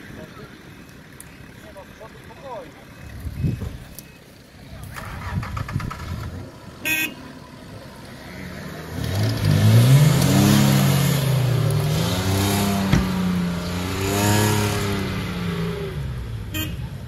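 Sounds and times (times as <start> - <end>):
engine revving hard: 8.4 - 16.1.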